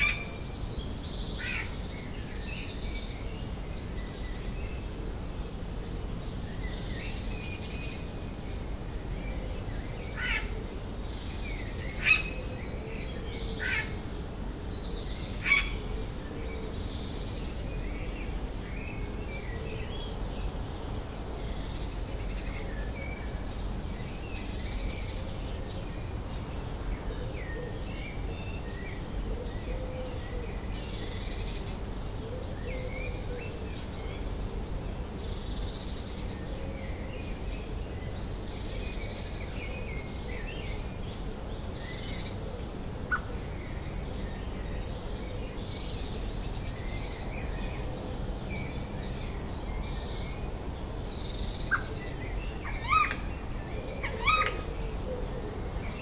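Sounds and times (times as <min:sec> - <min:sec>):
birds singing and calling: 0:00.0 - 0:05.0, 0:06.0 - 0:56.0
sharp bird calls: 0:51.6 - 0:54.8
low bird call: 0:53.9 - 0:54.8.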